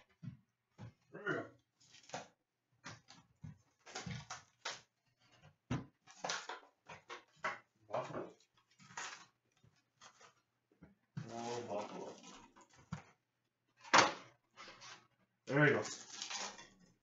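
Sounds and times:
cardboard scraping and rustling: 0:11.2 - 0:13.0, 0:14.6 - 0:16.8.

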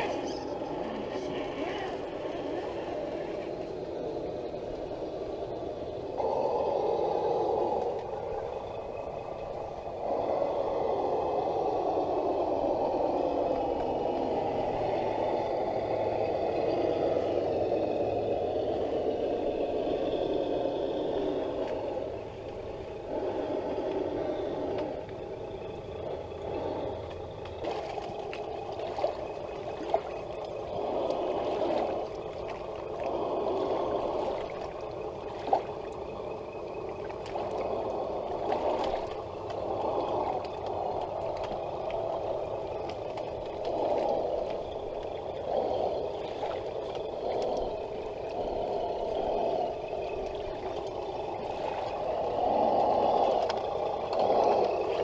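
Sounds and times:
rc truck electric motors: 0:00.0 - 0:34.2.

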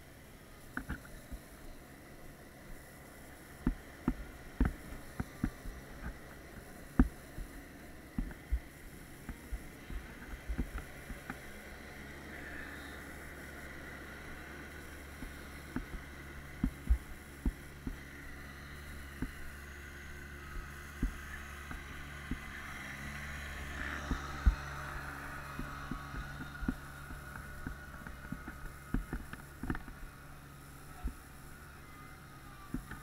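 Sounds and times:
distant dirt bike engines: 0:00.0 - 0:33.0
steady low hum: 0:00.0 - 0:33.0.

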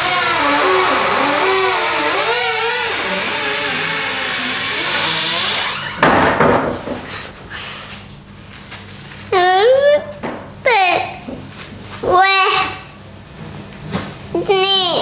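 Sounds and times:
wardrobe door creaking: 0:00.0 - 0:06.7.

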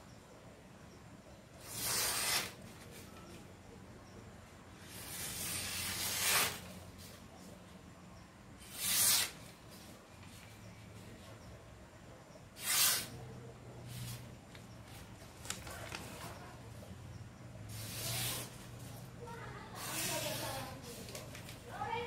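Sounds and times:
newspaper rustling against blade: 0:01.6 - 0:03.5, 0:04.8 - 0:07.3, 0:08.6 - 0:11.3, 0:12.6 - 0:13.2, 0:13.9 - 0:16.5, 0:17.7 - 0:19.0, 0:19.7 - 0:21.9.

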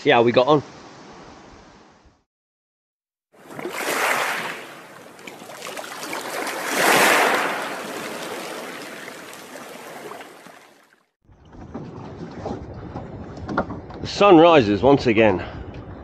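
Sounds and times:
underwater whoosh: 0:03.4 - 0:10.9.

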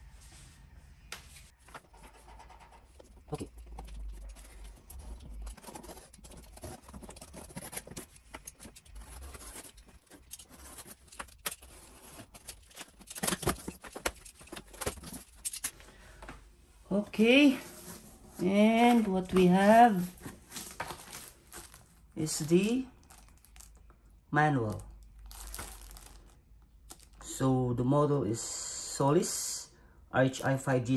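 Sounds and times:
cardboard scraping and rustling: 0:01.5 - 0:15.8, 0:17.3 - 0:22.0.

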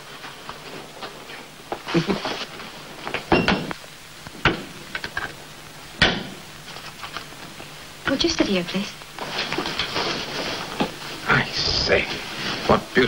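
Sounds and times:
clothing rustling: 0:09.2 - 0:11.2.

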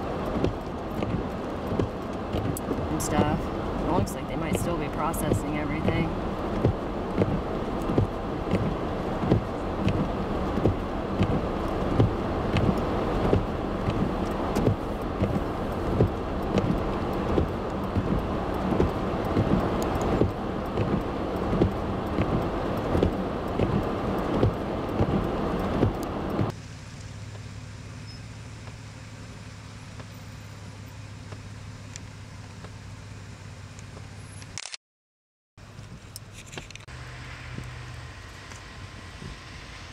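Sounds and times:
car engine and tyre noise: 0:00.0 - 0:34.8, 0:35.6 - 0:39.9
regular ticking: 0:00.1 - 0:26.5.

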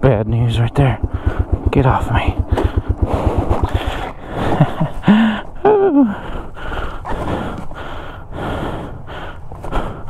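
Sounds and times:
man breathing heavily: 0:01.0 - 0:01.8, 0:02.4 - 0:10.0
man groaning: 0:04.0 - 0:06.3.

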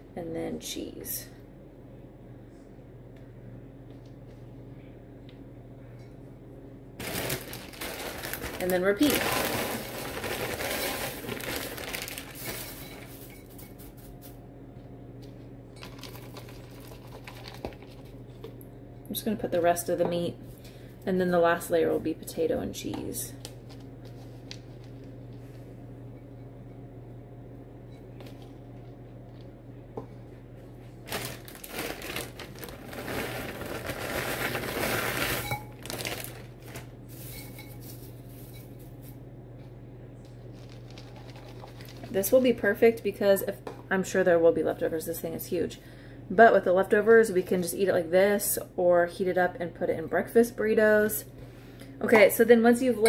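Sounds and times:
steady low hum: 0:00.0 - 0:53.0
plastic bag rustling: 0:07.0 - 0:14.3, 0:15.8 - 0:18.1, 0:31.0 - 0:39.2, 0:40.3 - 0:42.5
hash browns poured into a crock: 0:08.0 - 0:13.3.

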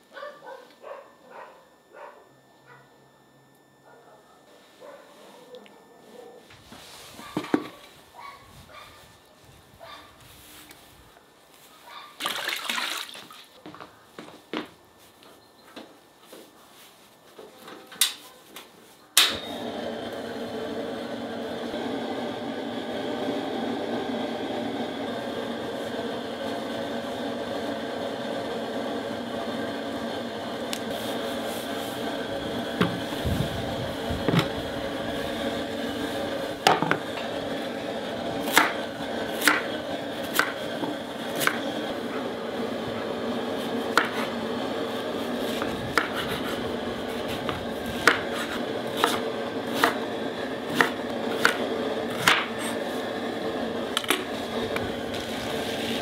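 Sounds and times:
knife chopping on wooden board: 0:39.4 - 0:39.7, 0:40.3 - 0:40.6, 0:41.4 - 0:41.6, 0:43.9 - 0:44.3, 0:45.6 - 0:46.6, 0:47.4 - 0:50.0, 0:50.7 - 0:52.6.

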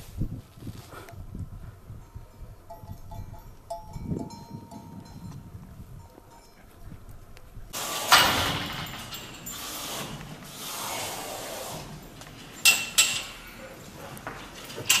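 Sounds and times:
cattle rustling and scraping hay: 0:07.8 - 0:15.0.

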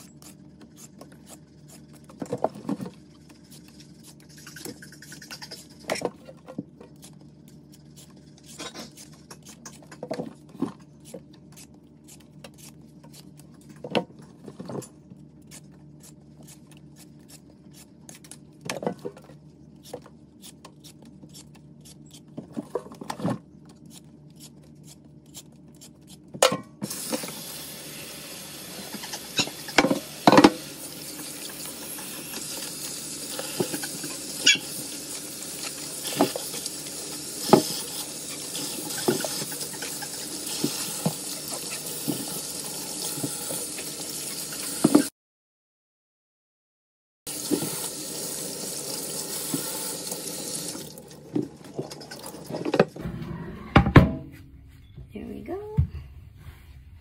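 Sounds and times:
water running into steel sink: 0:47.3 - 0:51.1.

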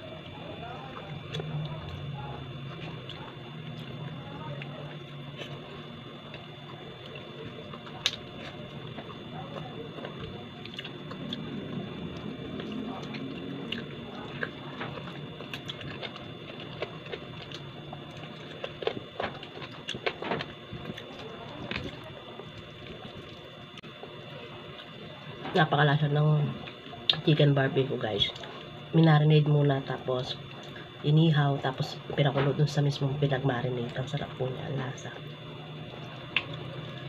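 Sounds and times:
steady background hum: 0:00.0 - 0:37.0
person chewing: 0:00.8 - 0:23.6.

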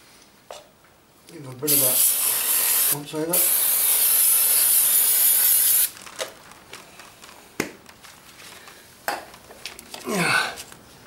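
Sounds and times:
aerosol can spraying: 0:01.7 - 0:05.9.

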